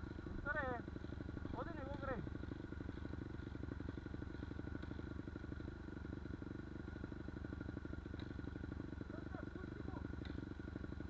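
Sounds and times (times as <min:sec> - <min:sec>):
dirt bike engines idling: 0:00.0 - 0:11.0.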